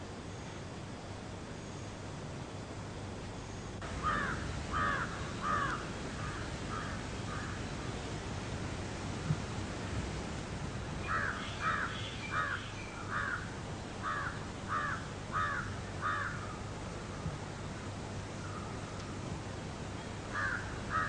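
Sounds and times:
steady low hiss: 0:00.0 - 0:21.0
crow cawing: 0:04.0 - 0:07.6, 0:11.0 - 0:16.6, 0:20.3 - 0:21.0.

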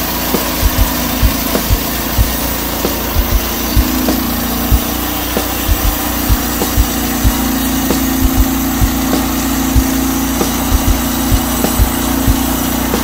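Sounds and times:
short low thumps: 0:00.5 - 0:02.4, 0:03.1 - 0:04.8, 0:05.7 - 0:09.0, 0:10.7 - 0:12.4.

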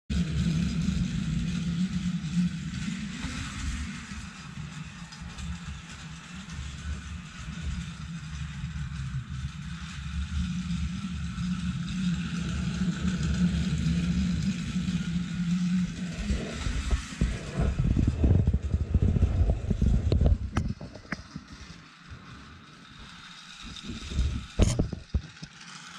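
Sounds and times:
toy train motor buzzing: 0:00.1 - 0:25.9
low thumps and rumbling: 0:12.4 - 0:22.4, 0:23.0 - 0:25.5.

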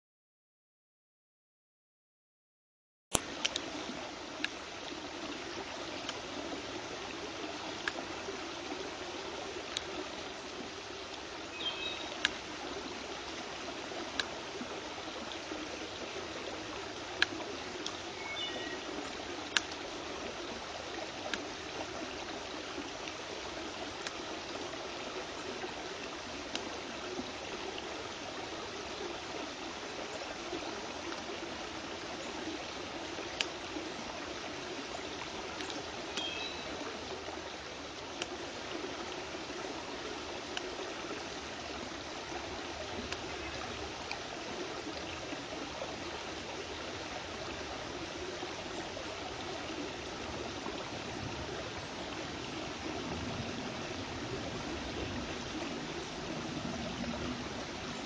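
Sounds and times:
brook water running: 0:03.1 - 0:58.0.

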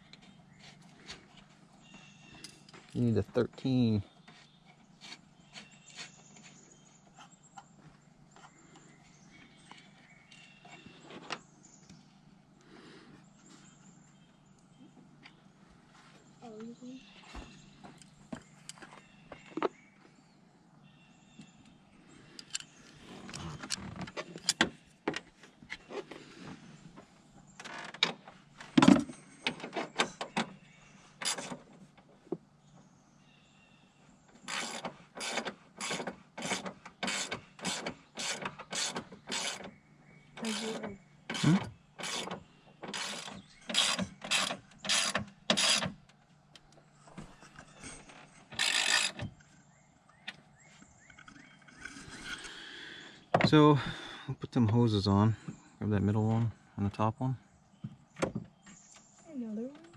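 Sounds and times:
hand ratchet clicking: 0:34.5 - 0:39.7, 0:41.3 - 0:45.9, 0:48.5 - 0:49.2.

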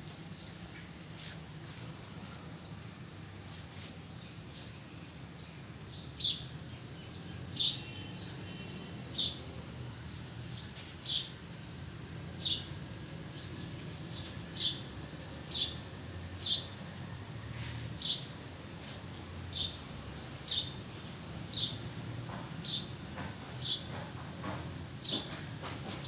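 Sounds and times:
steady low hum: 0:00.0 - 0:22.4
bird chirping: 0:05.5 - 0:09.5, 0:10.6 - 0:11.4, 0:13.3 - 0:14.9, 0:20.4 - 0:20.8.

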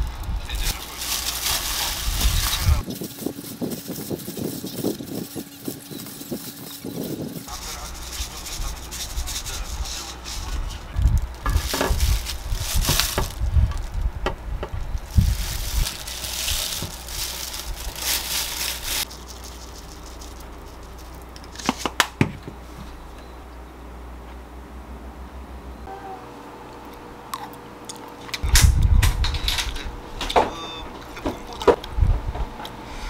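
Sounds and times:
plastic gloves crinkling: 0:00.0 - 0:22.1.

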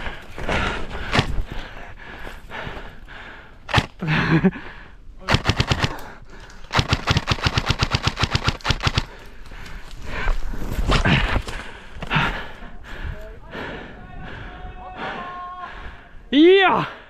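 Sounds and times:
airsoft gun shots: 0:03.7 - 0:03.9.

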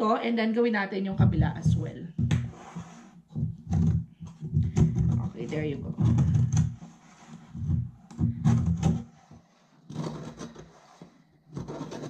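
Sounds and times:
knife scraping metal cake pan: 0:04.9 - 0:12.0.

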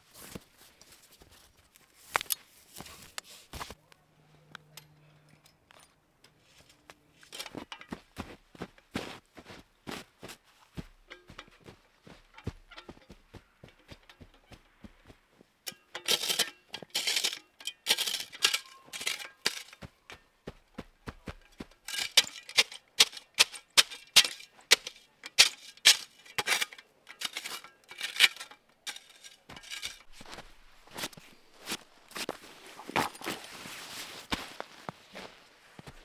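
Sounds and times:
snow crunching: 0:07.4 - 0:15.4, 0:29.5 - 0:36.0.

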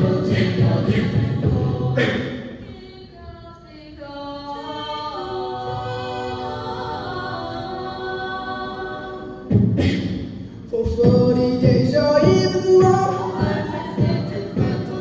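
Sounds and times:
vocal percussion beat: 0:00.0 - 0:02.7, 0:09.4 - 0:15.0
a cappella group singing: 0:00.0 - 0:15.0.

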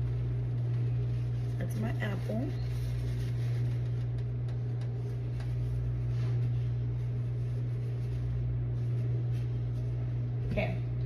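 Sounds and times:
vent fan humming: 0:00.0 - 0:11.0.

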